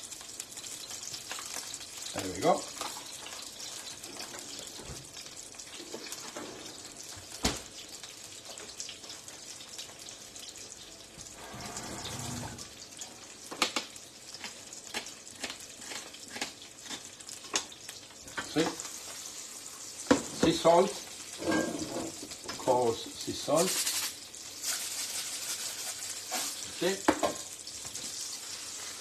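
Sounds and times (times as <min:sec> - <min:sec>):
steady hiss: 0:22.7 - 0:27.0.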